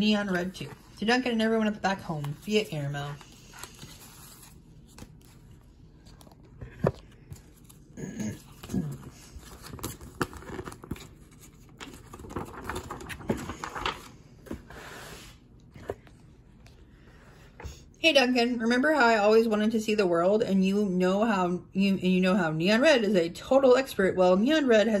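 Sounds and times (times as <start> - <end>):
paper rustling and crinkling: 0.3 - 14.7.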